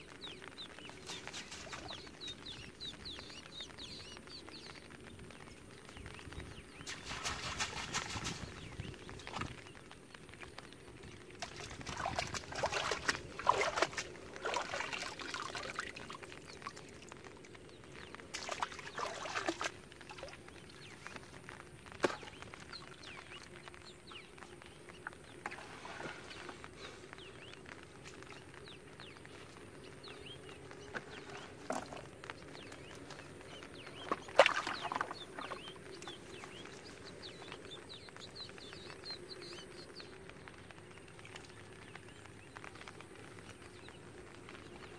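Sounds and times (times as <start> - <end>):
water trickling: 0.1 - 44.9
water splashing off fishing net: 11.4 - 16.1, 34.1 - 35.6.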